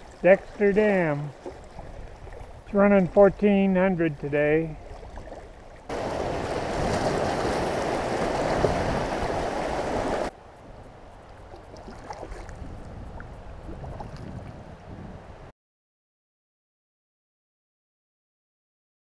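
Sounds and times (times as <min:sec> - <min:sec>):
river water rushing: 0:00.0 - 0:02.5, 0:04.8 - 0:10.3
faint small splashes: 0:00.0 - 0:02.7, 0:11.5 - 0:14.6.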